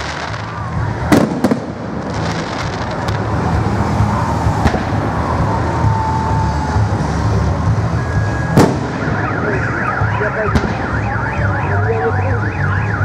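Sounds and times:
firework bang: 1.1 - 3.3, 4.5 - 5.3, 8.5 - 9.5, 10.5 - 11.0
car alarm wailing: 7.9 - 13.0.

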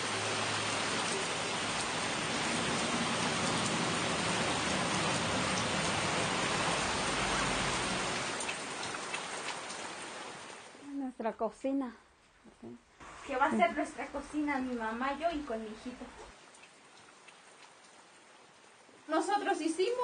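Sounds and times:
steady rain falling: 0.0 - 11.2, 12.2 - 20.0
faint drip ticks: 16.2 - 18.0.

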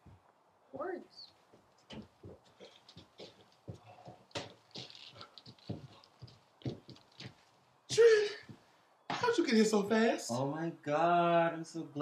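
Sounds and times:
footsteps on wooden floor: 1.5 - 7.5.

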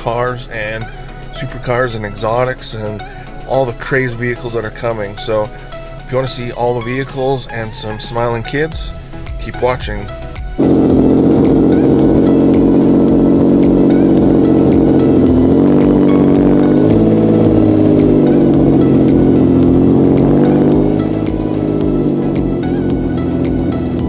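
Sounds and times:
car engine running loud: 10.6 - 24.0.

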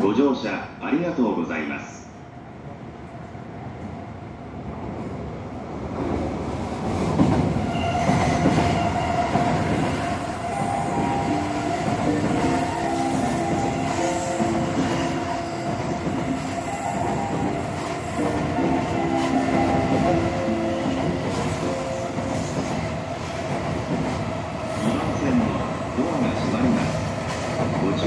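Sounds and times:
station platform noise: 0.0 - 28.0
electronic departure melody: 10.3 - 22.4.

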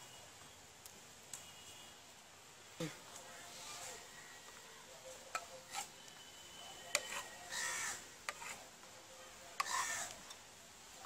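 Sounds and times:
harsh animal calls: 7.0 - 8.1, 9.6 - 10.2.

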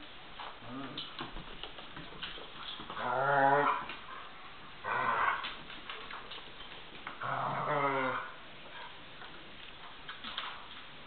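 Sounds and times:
dog growling: 3.0 - 3.9, 4.8 - 5.5, 7.2 - 8.4.

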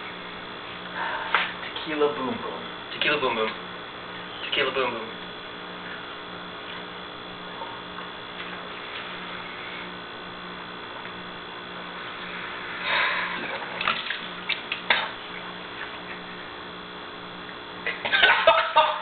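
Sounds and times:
electrical hum: 0.0 - 19.0
man vomiting into a sink: 13.4 - 14.3.

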